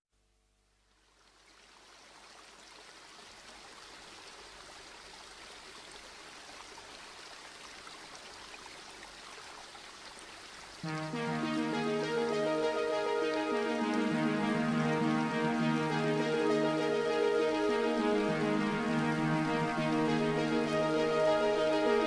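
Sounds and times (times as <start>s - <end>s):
water splashing and trickling: 0.9s - 22.0s
music: 10.8s - 22.0s.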